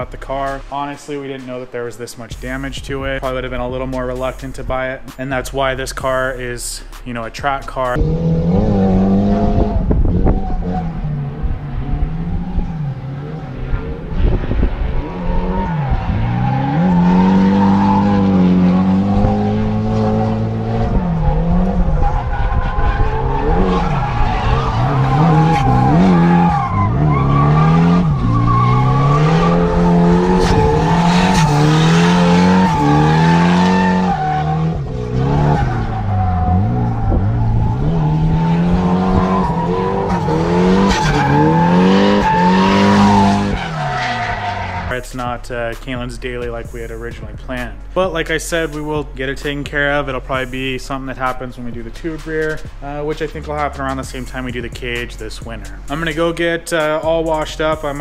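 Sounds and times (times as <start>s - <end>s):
car engine revving hard: 7.9s - 45.1s
tyres squealing: 20.0s - 45.2s.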